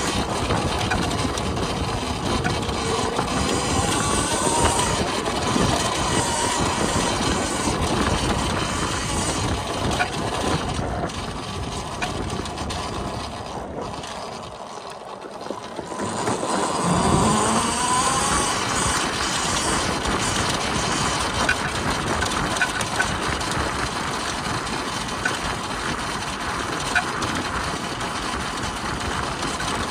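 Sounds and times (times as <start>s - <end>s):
electric motor whine: 0.0s - 23.0s
tyre and chassis rattle: 0.0s - 29.9s.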